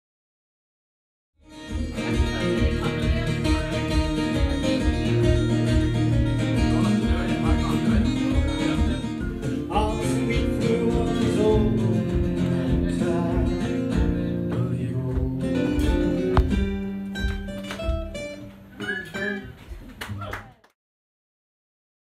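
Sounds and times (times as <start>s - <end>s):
acoustic guitar playing: 1.4s - 19.8s
man singing: 1.6s - 16.8s.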